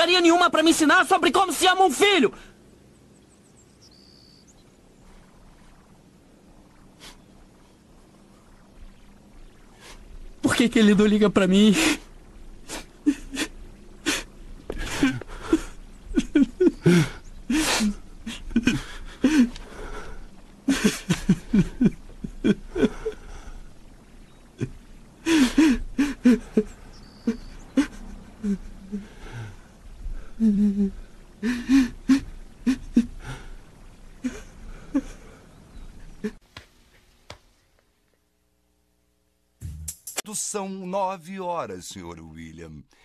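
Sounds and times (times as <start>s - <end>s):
man sobbing: 13.0s - 20.1s, 20.7s - 23.4s, 24.6s - 26.7s, 27.3s - 29.5s, 30.4s - 33.4s, 34.2s - 35.4s.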